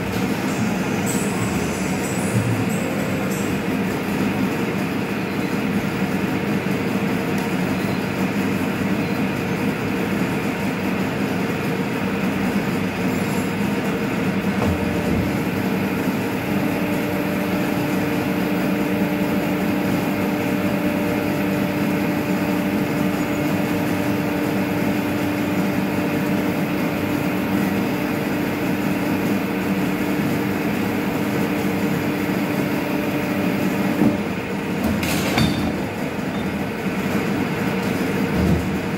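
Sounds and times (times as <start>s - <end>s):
steady hum: 0.0s - 8.8s
pipe-bending machine running: 0.0s - 38.9s.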